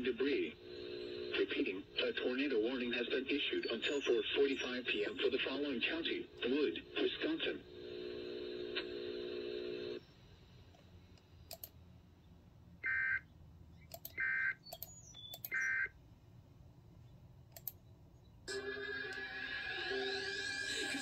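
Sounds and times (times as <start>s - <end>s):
steady hum: 0.0s - 13.0s
sharp clicks: 10.7s - 11.8s, 13.8s - 15.7s, 17.5s - 17.8s
music: 18.5s - 21.0s.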